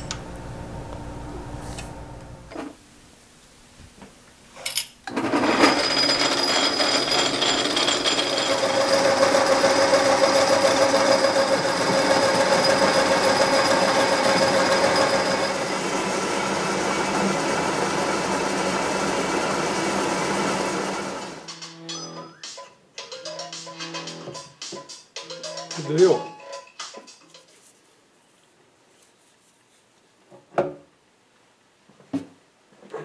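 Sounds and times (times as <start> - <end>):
lathe cutting metal: 5.2 - 21.5.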